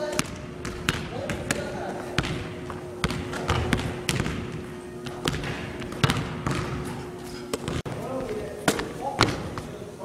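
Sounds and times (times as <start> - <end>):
basketball bouncing on wooden floor: 0.2 - 6.8.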